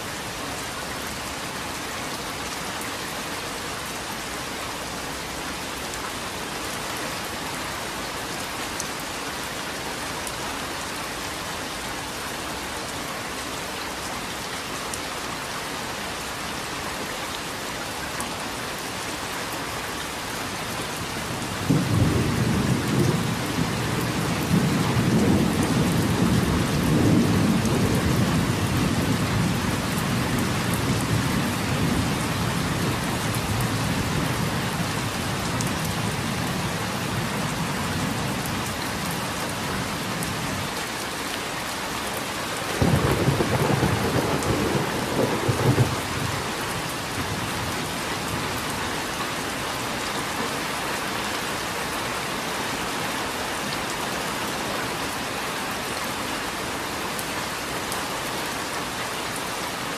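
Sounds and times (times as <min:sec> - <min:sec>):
steady rain falling: 0:00.0 - 0:59.9
thunder rumbling: 0:42.7 - 0:46.3.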